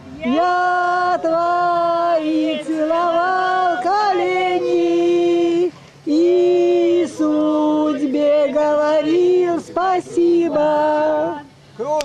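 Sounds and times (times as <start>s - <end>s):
group singing unaccompanied: 0.0s - 11.6s.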